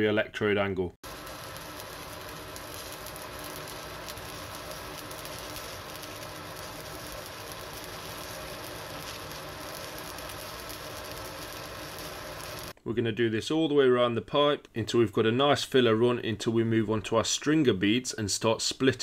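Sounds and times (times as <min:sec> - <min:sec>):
welding arc crackling: 0:01.0 - 0:12.8.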